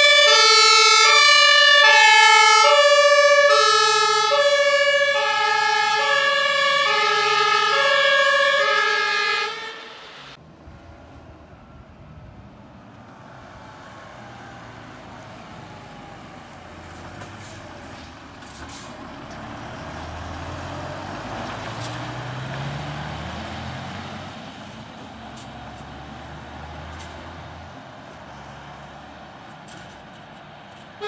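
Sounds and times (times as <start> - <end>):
diesel truck engine driving past: 0.0 - 31.0.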